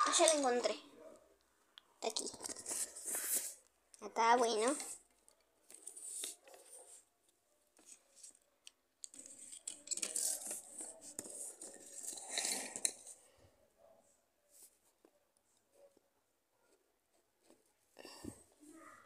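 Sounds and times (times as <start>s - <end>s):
objects rustling and scraping on table: 2.1s - 3.7s, 4.6s - 5.1s, 5.7s - 7.1s, 9.1s - 13.4s.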